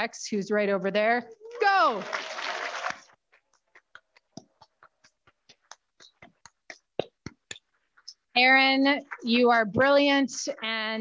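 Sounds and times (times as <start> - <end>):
person clapping hands: 2.0 - 3.2.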